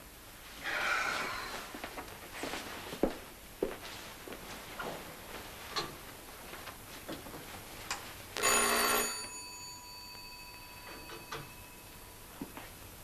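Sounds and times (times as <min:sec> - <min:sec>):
electric doorbell ringing: 0:08.4 - 0:12.4.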